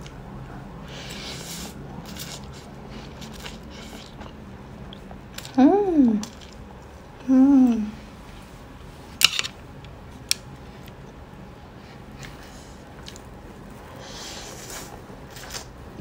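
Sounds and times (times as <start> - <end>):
slurping noodles: 0.9 - 4.4.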